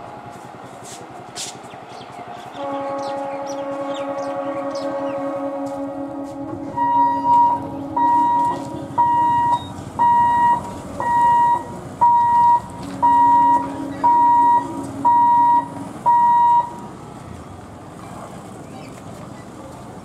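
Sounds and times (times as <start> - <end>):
level crossing buzzer beeping: 6.8 - 16.7.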